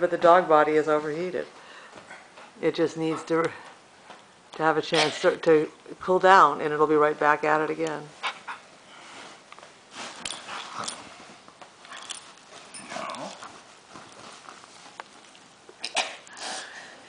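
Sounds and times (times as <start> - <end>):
bedding rustling: 6.3 - 17.0.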